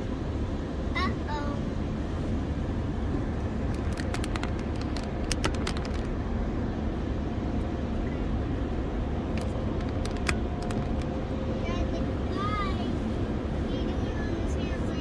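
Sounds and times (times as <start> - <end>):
sharp ticks on car body: 3.7 - 6.1, 9.4 - 11.1.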